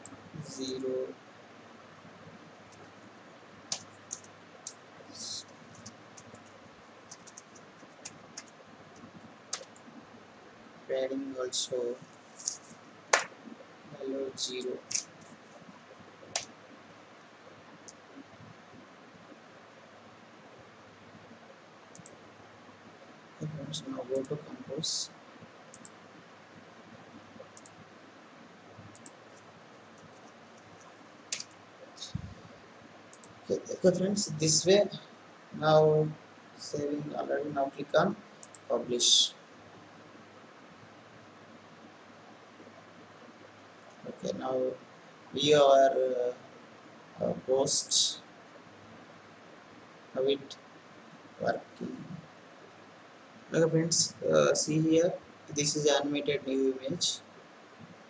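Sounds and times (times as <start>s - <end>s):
soft hiss: 0.0s - 58.0s
computer mouse clicks: 3.7s - 9.9s, 14.8s - 15.4s, 21.9s - 22.2s, 25.7s - 26.0s, 27.4s - 27.8s, 28.8s - 32.3s, 33.1s - 33.4s, 38.4s - 38.7s.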